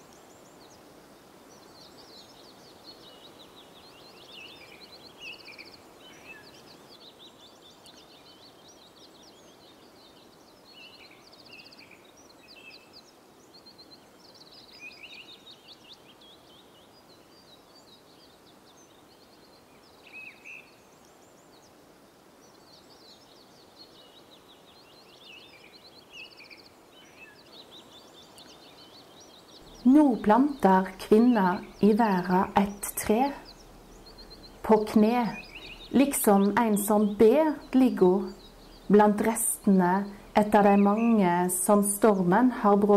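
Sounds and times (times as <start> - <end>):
birds chirping and trilling: 0.0 - 42.9
low background hush: 27.6 - 42.9.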